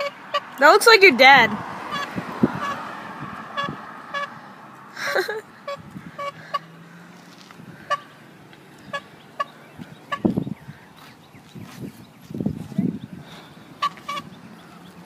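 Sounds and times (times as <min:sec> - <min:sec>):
small horn tooting: 0:00.0 - 0:00.6, 0:01.9 - 0:04.4, 0:05.6 - 0:06.7, 0:13.8 - 0:14.3.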